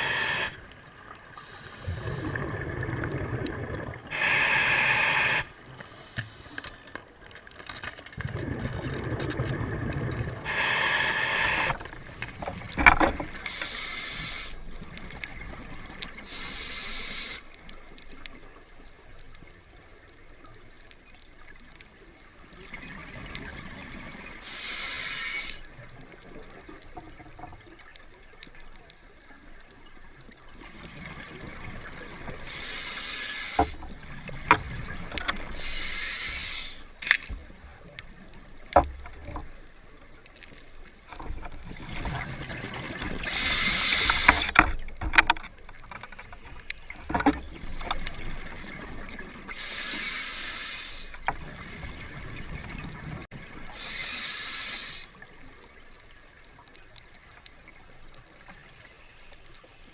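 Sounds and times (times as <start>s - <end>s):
bubbles hissing underwater: 0.0s - 0.7s, 1.6s - 6.0s, 30.8s - 37.0s, 41.6s - 44.6s, 47.5s - 55.4s.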